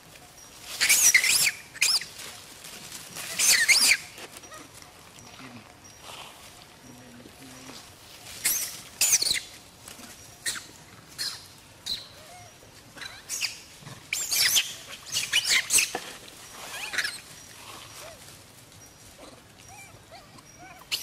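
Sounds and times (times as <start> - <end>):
monkeys screaming: 0.8 - 2.2, 3.2 - 4.2, 8.4 - 9.6, 10.4 - 15.9, 16.5 - 18.2, 19.6 - 21.0.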